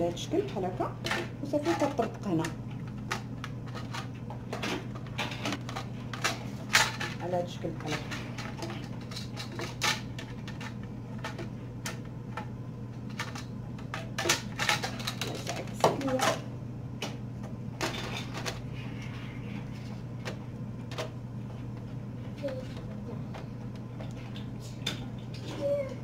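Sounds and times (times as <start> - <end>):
steady low hum: 0.0 - 26.0
plastic parts clicking: 13.1 - 16.4.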